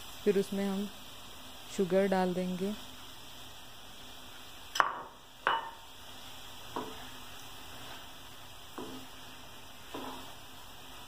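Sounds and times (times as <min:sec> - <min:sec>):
faint sizzle: 0:00.0 - 0:11.0
spatula stirring in frying pan: 0:05.4 - 0:11.0.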